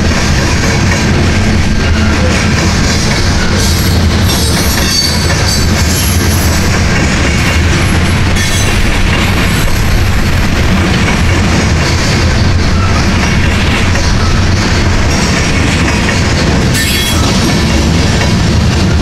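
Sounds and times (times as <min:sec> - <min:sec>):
freight train rumbling past: 0:00.0 - 0:19.0
steel wheels clattering on rails: 0:00.0 - 0:19.0.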